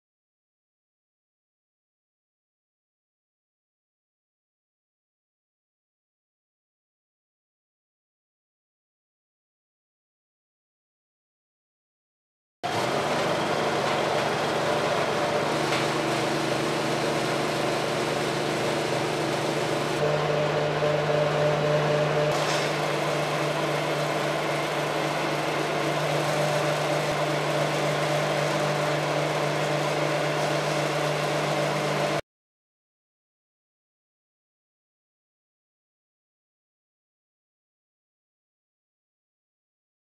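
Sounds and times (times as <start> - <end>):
pellet mill humming: 12.6 - 32.2.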